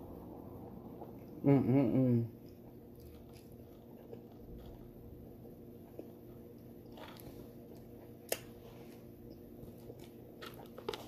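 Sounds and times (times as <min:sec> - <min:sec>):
low steady hum: 0:00.0 - 0:11.0
chewing food: 0:02.4 - 0:11.0.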